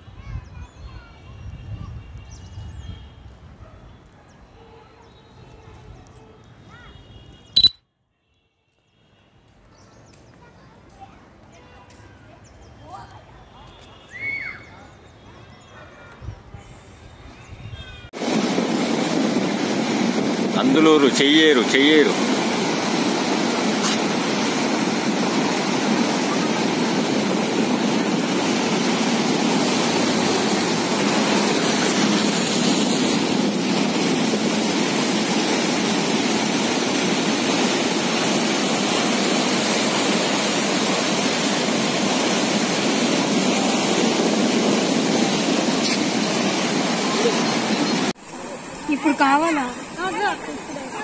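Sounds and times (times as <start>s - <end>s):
flooded river rushing: 18.2s - 51.0s.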